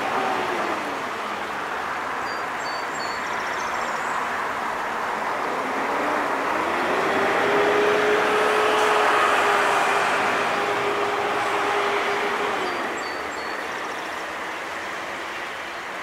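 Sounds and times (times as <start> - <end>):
small waterfall splashing: 0.0 - 2.6
faint high bird chirps: 2.2 - 4.2, 12.7 - 14.0.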